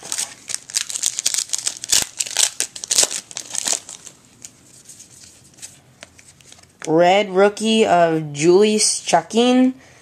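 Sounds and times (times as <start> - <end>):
foil wrapper crinkling: 0.0 - 5.2.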